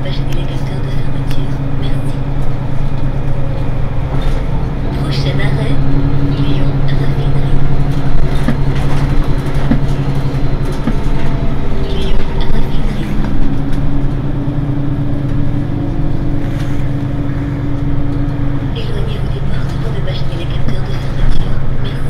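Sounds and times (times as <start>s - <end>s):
bus diesel engine droning: 0.0s - 22.0s.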